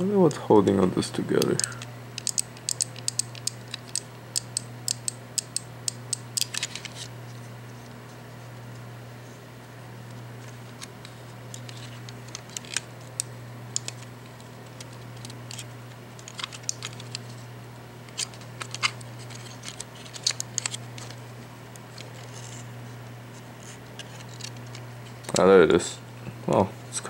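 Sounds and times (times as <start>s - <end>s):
clicks of plastic parts: 1.4s - 6.9s.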